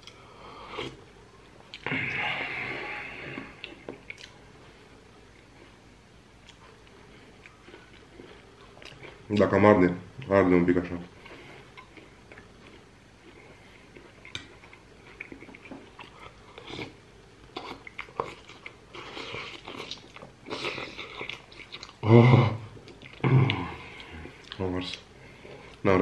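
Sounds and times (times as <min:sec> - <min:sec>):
chewing: 0:03.4 - 0:05.8, 0:06.4 - 0:09.3, 0:11.2 - 0:22.0, 0:22.8 - 0:25.8.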